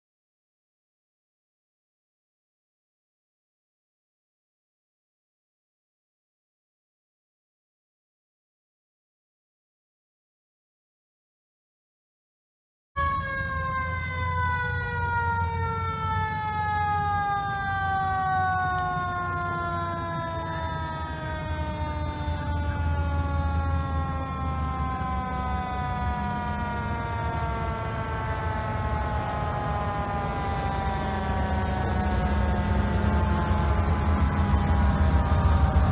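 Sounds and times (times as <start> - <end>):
low rumble of vehicle engines: 13.0 - 35.9
mechanical siren winding down: 13.0 - 35.9.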